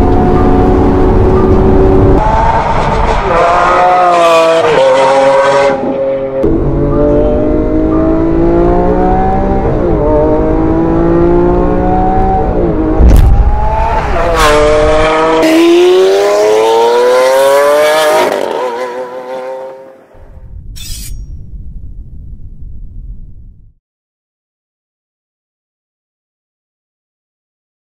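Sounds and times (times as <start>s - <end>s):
sports car engine accelerating: 0.0s - 20.0s
exhaust crack: 13.0s - 14.1s.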